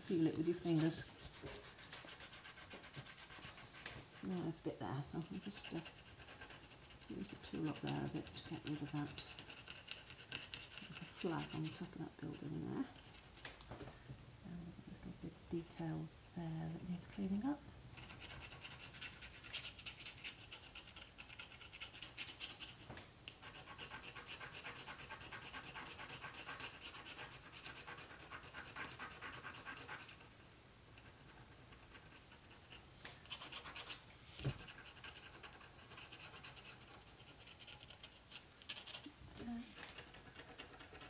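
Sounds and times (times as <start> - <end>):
scraper scratching paper: 5.2 - 12.6.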